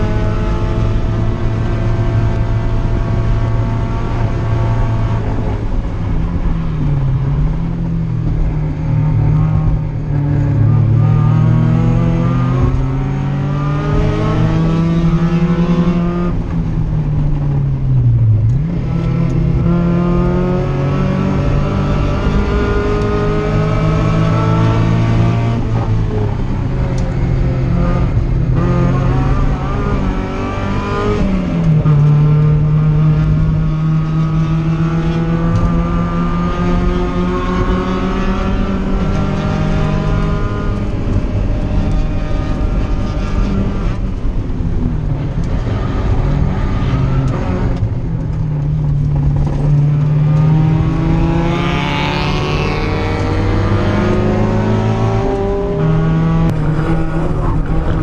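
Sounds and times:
car engine pulling hard: 0:00.0 - 0:58.0.

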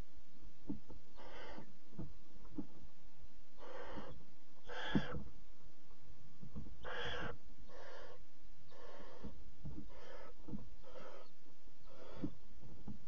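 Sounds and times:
owl chicks hissing begging calls: 0:01.1 - 0:01.7, 0:03.6 - 0:05.2, 0:06.8 - 0:12.4.

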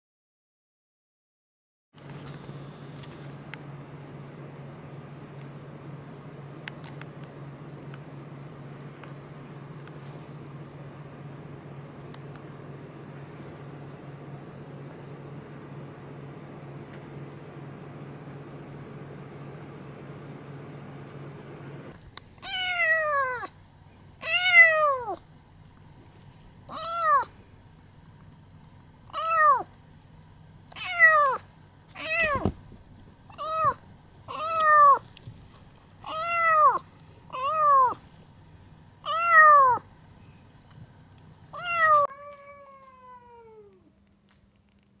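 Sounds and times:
cat meowing: 0:22.4 - 0:23.5, 0:24.2 - 0:25.2, 0:26.7 - 0:27.3, 0:29.1 - 0:29.7, 0:30.7 - 0:32.5, 0:33.3 - 0:35.0, 0:36.0 - 0:38.0, 0:39.0 - 0:39.8, 0:41.5 - 0:43.9.

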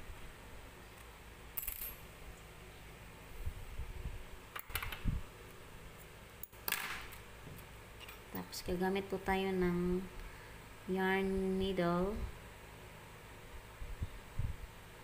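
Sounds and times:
metal objects clinking: 0:01.6 - 0:02.1.

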